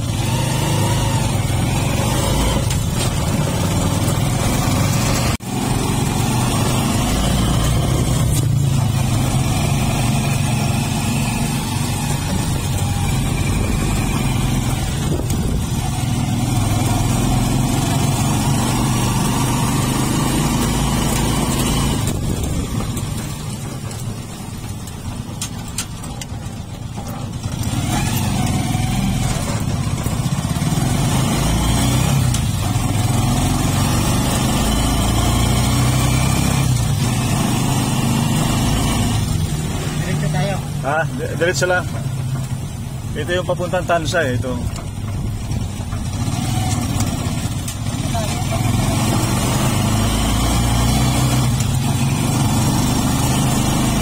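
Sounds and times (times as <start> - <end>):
motorcycle engine running: 0.0 - 54.0
wind on microphone: 14.8 - 15.9.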